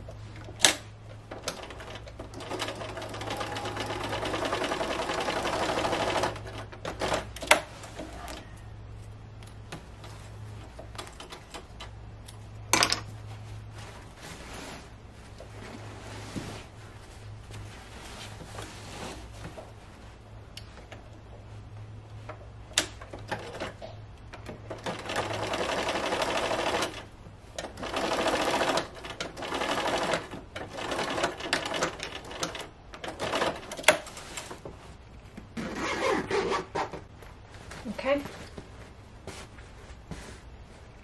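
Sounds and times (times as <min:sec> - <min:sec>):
sewing machine stitching: 0:01.4 - 0:08.4, 0:24.7 - 0:34.0.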